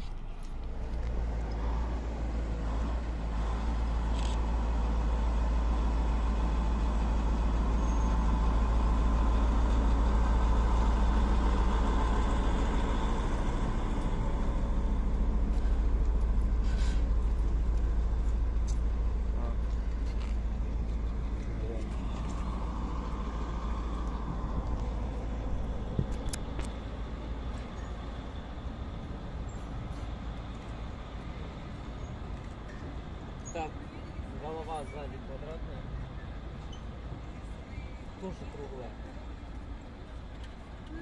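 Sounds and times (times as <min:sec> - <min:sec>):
train rumbling: 0:00.0 - 0:41.0.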